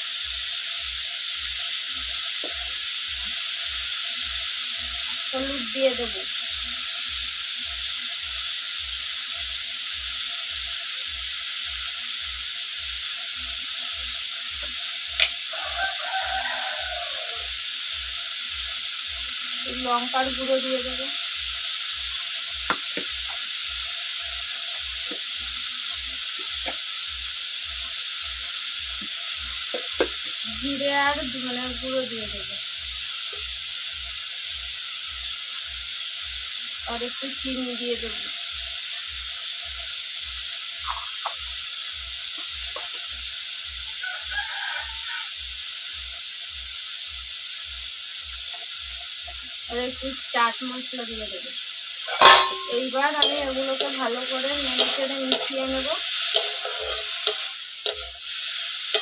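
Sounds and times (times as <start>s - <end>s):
vegetables sizzling in hot oil: 0.0s - 59.0s.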